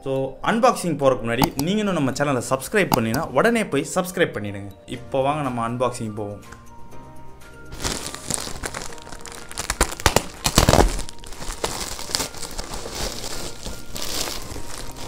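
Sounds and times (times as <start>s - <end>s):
plastic bag crinkling and tearing: 7.7s - 15.0s.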